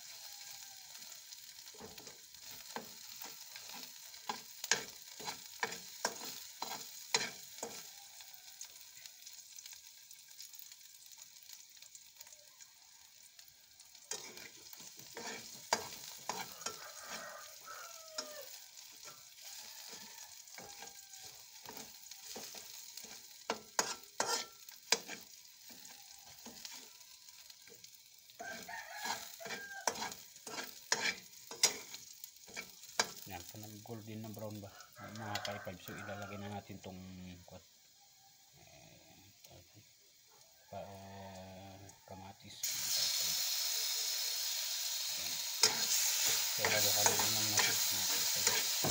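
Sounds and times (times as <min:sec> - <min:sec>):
rooster crowing: 0:00.0 - 0:01.3, 0:07.4 - 0:08.9, 0:12.2 - 0:13.9, 0:15.7 - 0:22.4, 0:25.6 - 0:27.4, 0:28.4 - 0:30.2, 0:34.5 - 0:36.8, 0:40.3 - 0:42.3
garlic sizzling in oil: 0:00.0 - 0:48.9
metal spatula scraping a pan: 0:01.6 - 0:08.0, 0:14.0 - 0:27.0, 0:28.4 - 0:33.3, 0:44.6 - 0:48.9.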